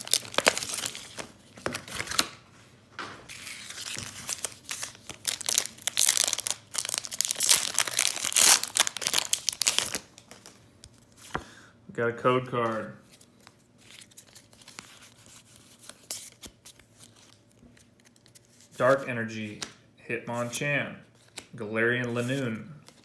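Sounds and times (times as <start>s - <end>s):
foil wrapper crinkling and tearing: 0.0s - 1.3s, 3.4s - 10.6s.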